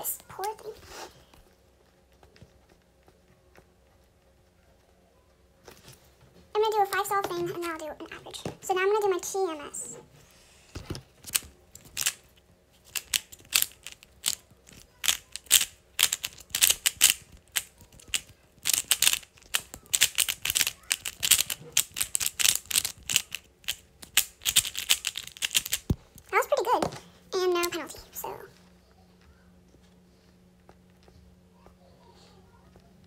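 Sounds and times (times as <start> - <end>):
plastic puzzle cube clacking: 11.2 - 12.2, 12.8 - 26.3.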